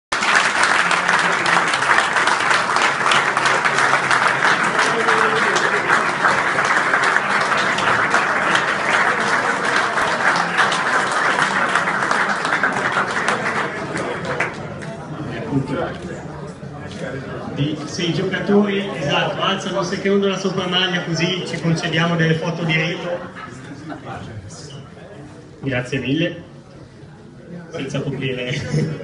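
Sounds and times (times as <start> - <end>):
crowd applauding: 0.1 - 15.1.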